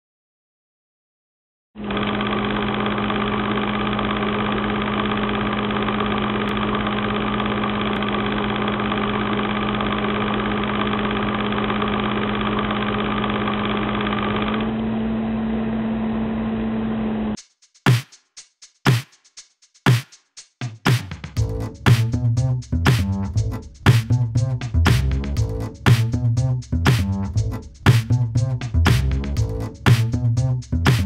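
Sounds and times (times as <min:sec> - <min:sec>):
machine humming: 0:01.8 - 0:17.4.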